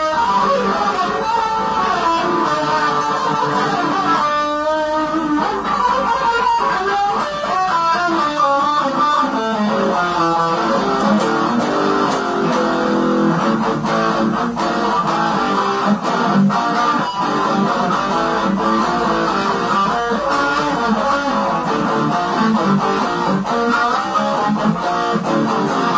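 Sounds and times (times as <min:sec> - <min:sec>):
lead electric guitar: 0:00.0 - 0:25.9.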